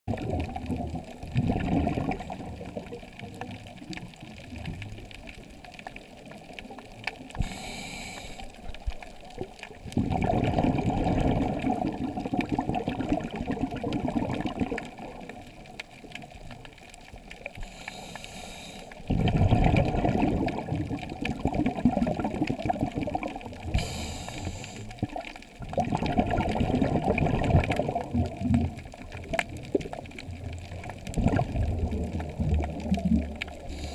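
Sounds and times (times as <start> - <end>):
exhaled bubbles rushing underwater: 0.1 - 18.1, 18.9 - 33.9
regulator inhalation hiss: 7.4 - 8.6, 17.6 - 19.0, 23.7 - 25.0, 33.6 - 33.9.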